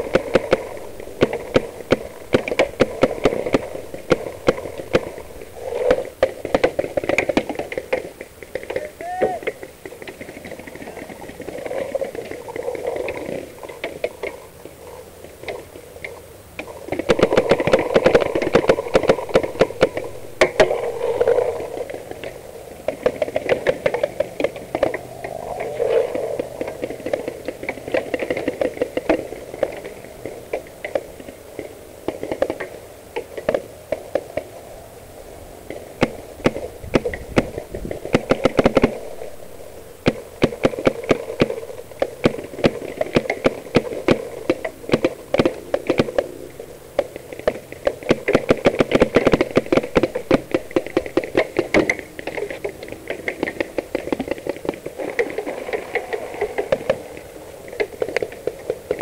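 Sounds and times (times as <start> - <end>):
paintball markers firing: 17.0 - 21.7, 40.0 - 46.3, 47.4 - 52.7.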